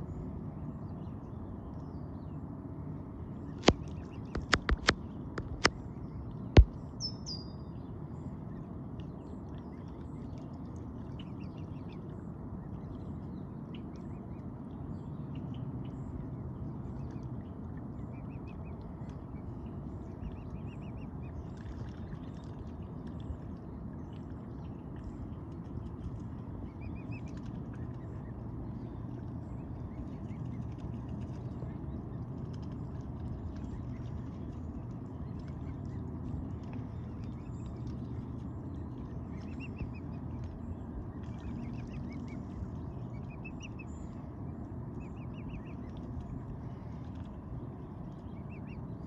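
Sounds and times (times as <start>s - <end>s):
low background hum: 0.0s - 49.0s
cygnets peeping: 3.6s - 5.8s, 39.0s - 44.2s, 44.9s - 46.2s
sharp click: 3.6s - 5.8s.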